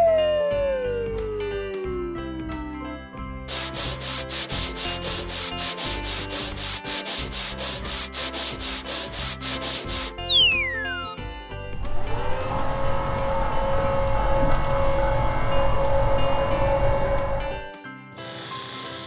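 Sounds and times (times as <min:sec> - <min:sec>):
background music: 0:00.0 - 0:19.0
cartoon sanding rasps: 0:03.5 - 0:10.6, 0:18.2 - 0:19.0
falling whistle: 0:10.2 - 0:11.1.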